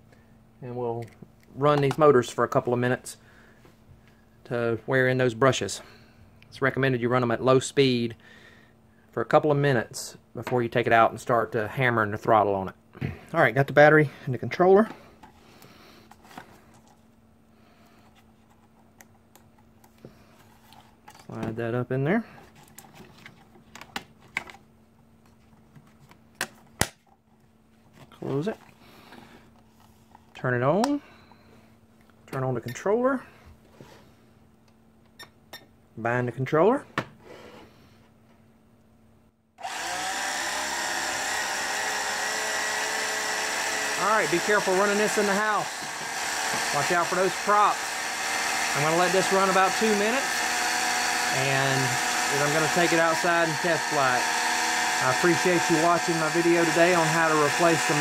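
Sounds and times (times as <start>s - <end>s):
faint steady hum: 0.0s - 39.7s
quadcopter motors whining: 39.6s - 58.0s.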